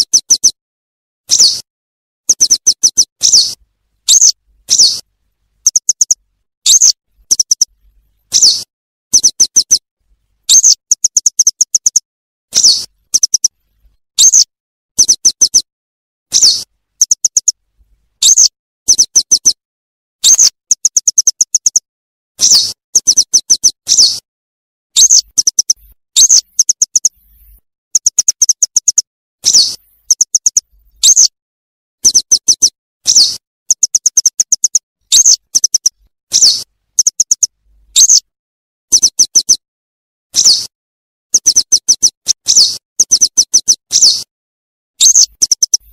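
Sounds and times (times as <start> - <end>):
wagtail calls and chirps: 5.6 - 9.8, 16.3 - 17.5, 24.9 - 31.3, 32.0 - 38.3, 45.0 - 45.9.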